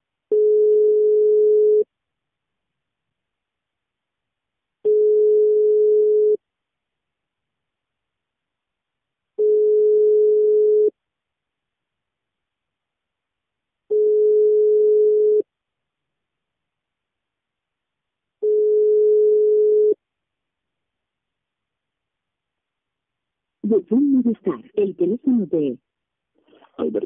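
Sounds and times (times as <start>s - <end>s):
telephone ringback tone: 0.3s - 1.8s, 4.9s - 6.4s, 9.4s - 10.9s, 13.9s - 15.4s, 18.4s - 20.0s.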